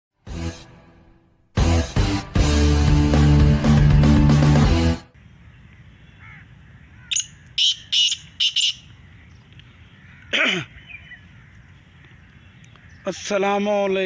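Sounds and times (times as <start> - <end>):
francolin calling harsh notes: 6.1 - 9.0.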